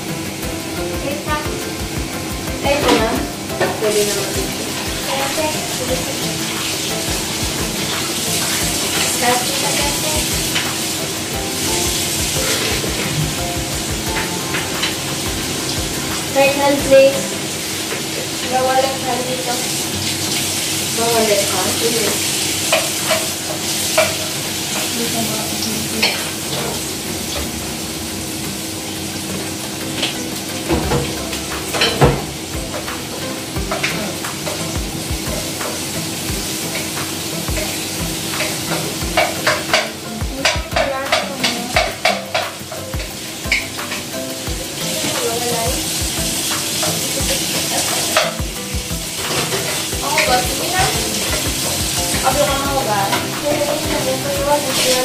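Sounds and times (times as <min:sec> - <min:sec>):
food sizzling in a frying pan: 0:00.0 - 0:55.0
spatula scraping and knocking pan: 0:22.6 - 0:24.9, 0:36.4 - 0:45.3.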